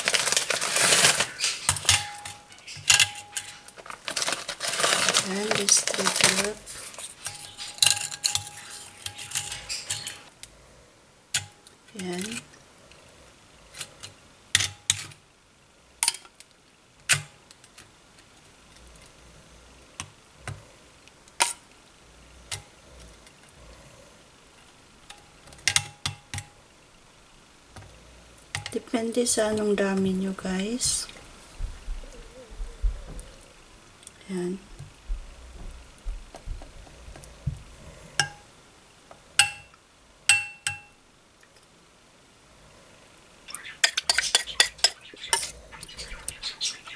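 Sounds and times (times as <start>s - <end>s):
metal spoon clinking on dishes: 7.2s - 10.2s, 43.8s - 45.5s
soft low knocks: 31.5s - 33.5s, 34.7s - 37.8s.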